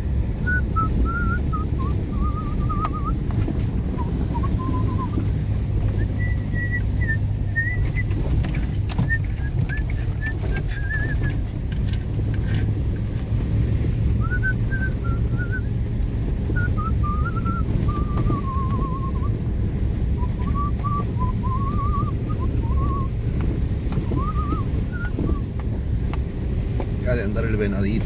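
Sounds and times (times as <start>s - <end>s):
car engine and tyre rumble: 0.0s - 28.0s
thin wavering whistle: 0.4s - 3.2s, 4.0s - 5.2s, 6.0s - 8.1s, 9.0s - 11.4s, 14.2s - 15.7s, 16.5s - 19.5s, 20.2s - 23.2s, 24.0s - 25.5s.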